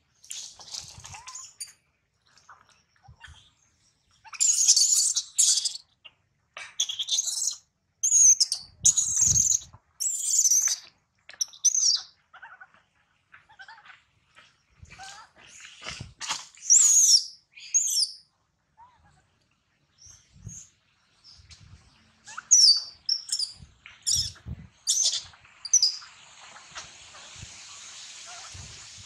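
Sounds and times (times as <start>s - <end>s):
infant monkey screeching: 1.0s - 1.7s, 4.3s - 5.8s, 6.7s - 10.8s, 16.4s - 18.2s, 22.3s - 26.0s.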